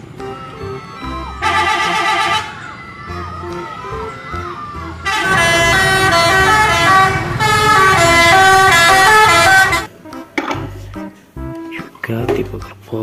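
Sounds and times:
bus multi-tone air horn tune: 0:01.4 - 0:02.6, 0:05.0 - 0:09.9.

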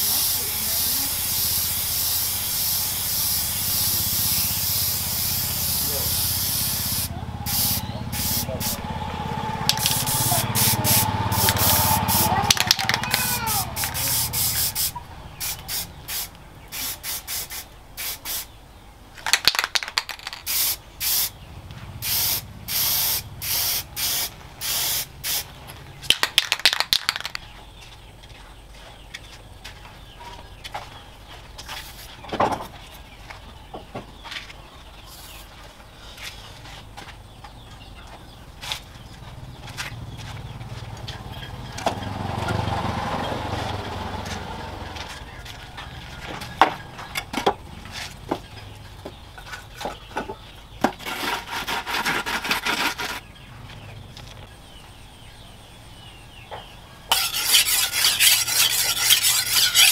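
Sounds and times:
aerosol spray can spurts: 0:09.7 - 0:14.9.

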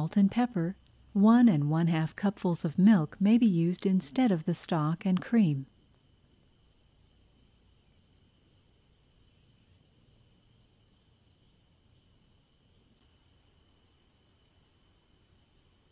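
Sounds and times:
crickets chirping: 0:05.7 - 0:15.9.

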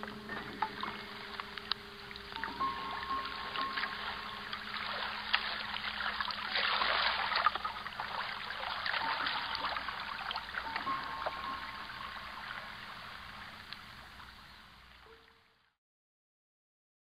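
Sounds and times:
water droplet ticks: 0:00.0 - 0:03.9
creek water trickling and splashing: 0:00.0 - 0:15.7.

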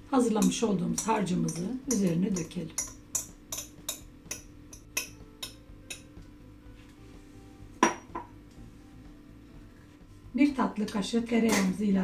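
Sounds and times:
knock on bowl: 0:07.8 - 0:08.4.

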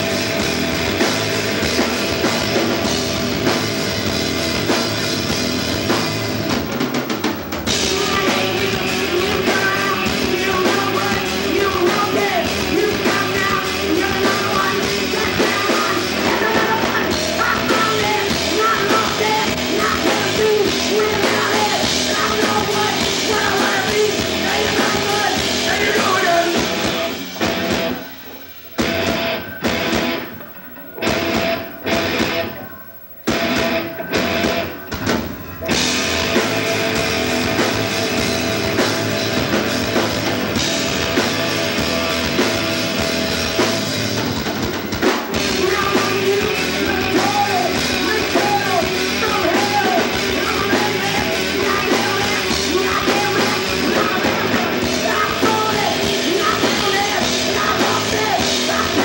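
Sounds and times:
live rock band playing: 0:00.0 - 0:59.0
person singing: 0:07.7 - 0:27.2, 0:45.3 - 0:59.0.

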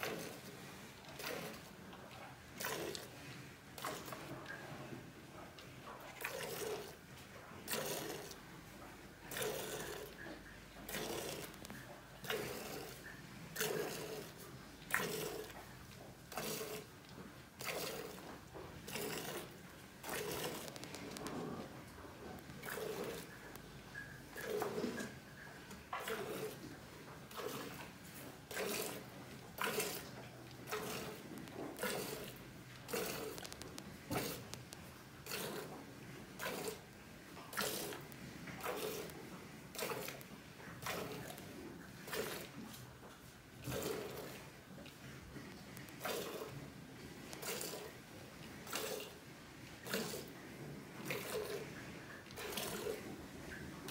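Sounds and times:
milk squirting into steel pail: 0:01.1 - 0:01.6, 0:02.6 - 0:03.1, 0:06.2 - 0:07.0, 0:07.7 - 0:08.4, 0:09.3 - 0:10.2, 0:10.9 - 0:15.6, 0:16.3 - 0:16.9, 0:17.6 - 0:18.3, 0:18.9 - 0:21.4, 0:22.4 - 0:25.1, 0:27.3 - 0:27.8, 0:28.5 - 0:31.2, 0:31.8 - 0:35.7, 0:36.4 - 0:36.8, 0:37.5 - 0:38.0, 0:38.6 - 0:39.1, 0:39.7 - 0:40.2, 0:40.8 - 0:41.4, 0:42.1 - 0:42.6, 0:46.0 - 0:46.6, 0:47.4 - 0:48.0, 0:48.6 - 0:49.2, 0:49.8 - 0:50.3, 0:51.0 - 0:51.6, 0:52.2 - 0:53.0
milk squirting into steel pot: 0:18.9 - 0:21.4, 0:30.7 - 0:31.2, 0:31.8 - 0:35.7, 0:37.5 - 0:39.1, 0:39.7 - 0:40.2, 0:46.0 - 0:46.5, 0:47.4 - 0:47.9, 0:48.6 - 0:49.2, 0:51.0 - 0:51.6, 0:52.2 - 0:53.0.

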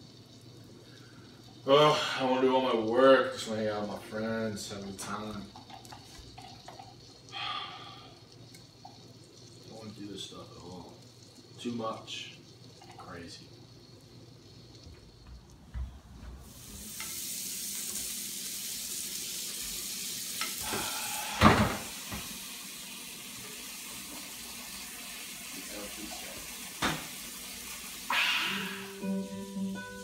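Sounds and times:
food sizzling on electric griddle: 0:16.4 - 0:30.0.

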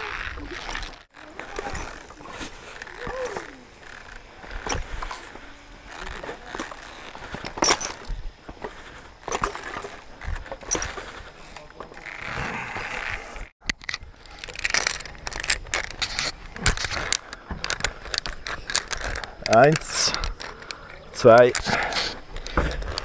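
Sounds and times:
ropes and harness rustling: 0:00.0 - 0:23.0
metallic pulley and carabiner clicks: 0:13.6 - 0:23.0.

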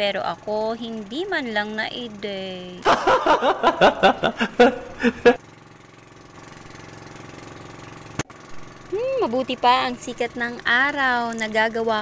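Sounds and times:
boat engine droning: 0:00.0 - 0:08.2.

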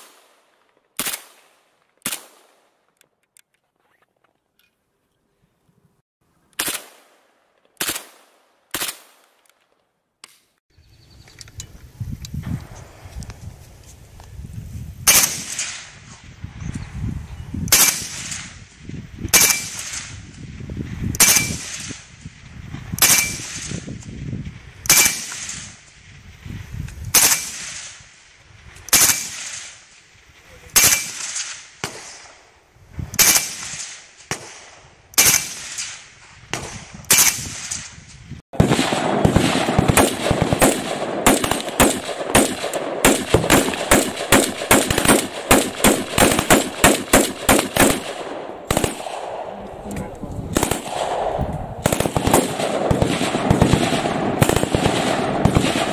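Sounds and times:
rifle single shots echoing: 0:00.0 - 0:02.8, 0:06.6 - 0:09.4, 0:30.8 - 0:32.4, 0:38.6 - 0:49.9, 0:50.5 - 0:55.9
rifle rapid fire: 0:01.0 - 0:02.7, 0:06.6 - 0:09.2, 0:15.1 - 0:15.9, 0:33.2 - 0:37.9, 0:38.6 - 0:49.7, 0:50.5 - 0:55.9.

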